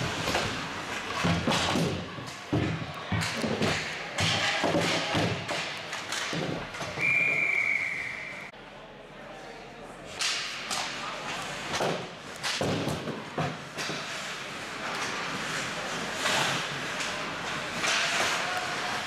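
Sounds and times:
referee's whistle: 7.0 - 8.5.

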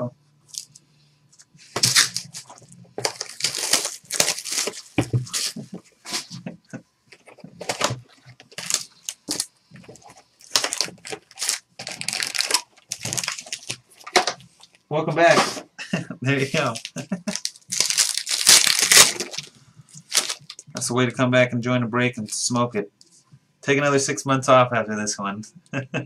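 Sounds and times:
plastic shrink wrap tearing: 1.8 - 5.6, 8.5 - 14.2, 16.5 - 20.6.

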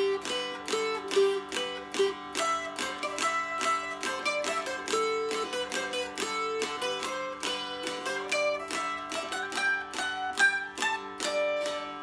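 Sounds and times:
mountain dulcimer strummed: 0.0 - 12.0.

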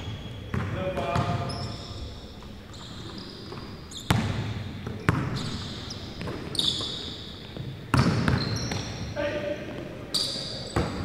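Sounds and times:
sneakers squeaking: 0.0 - 11.0.

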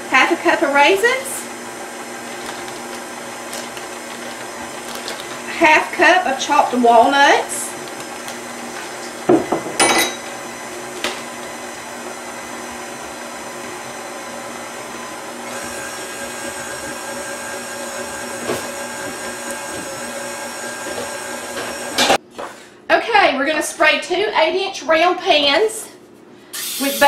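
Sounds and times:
stand mixer motor humming: 1.4 - 22.2.

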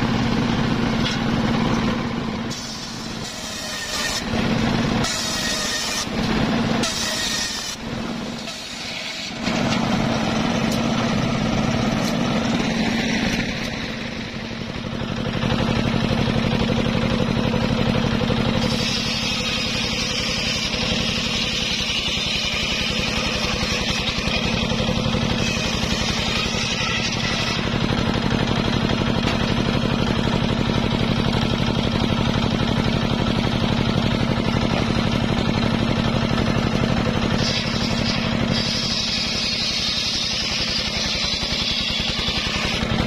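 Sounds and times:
sawmill engine drone: 0.0 - 43.0
saw blade hissing through wood: 2.5 - 4.4, 5.0 - 9.7, 18.6 - 27.7, 37.2 - 42.9.

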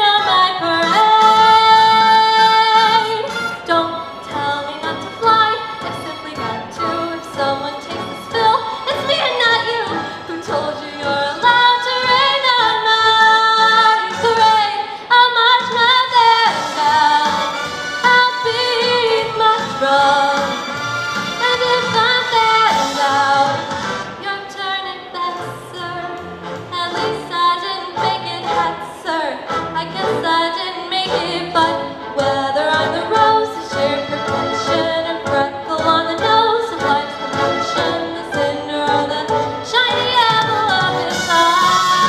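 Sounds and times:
girl singing into a microphone: 0.0 - 17.2, 37.8 - 42.0
musical accompaniment: 0.0 - 42.0.

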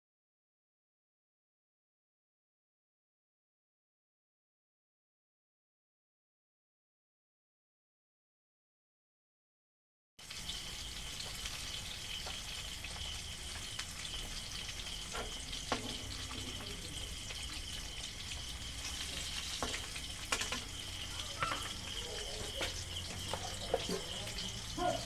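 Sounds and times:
fish sizzling in hot oil: 10.2 - 25.0.

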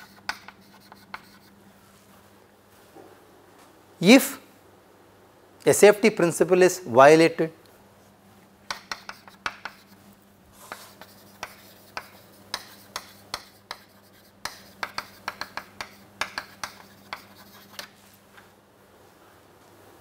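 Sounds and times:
chalk tapping and scratching on chalkboard: 0.0 - 1.6, 8.7 - 18.1.

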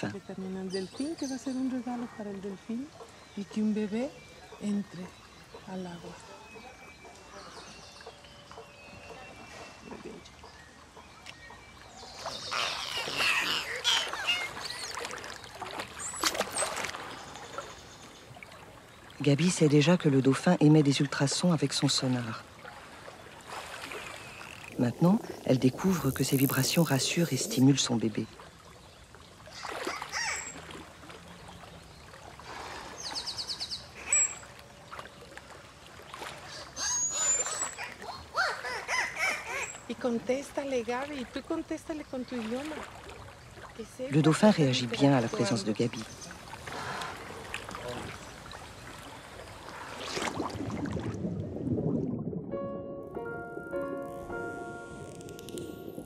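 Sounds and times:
water splashing: 9.1 - 56.0
dolphin whistles: 12.4 - 15.0, 34.0 - 34.5, 36.6 - 39.9
dolphin buzzing pulse train: 53.7 - 56.0.

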